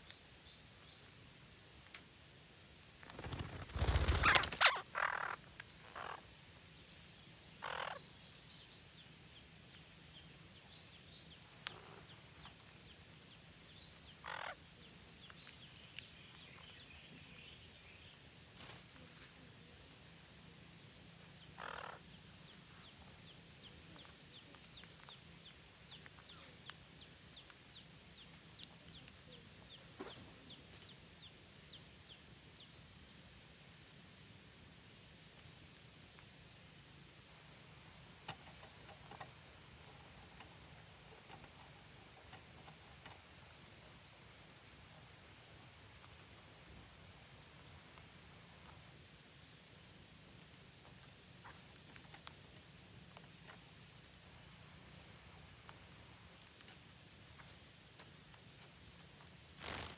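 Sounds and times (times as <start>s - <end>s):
wings fluttering: 2.8s - 5.4s, 18.5s - 19.3s, 59.5s - 59.9s
parakeets squawking: 4.1s - 6.2s, 7.6s - 8.0s, 14.2s - 14.6s, 21.6s - 22.0s.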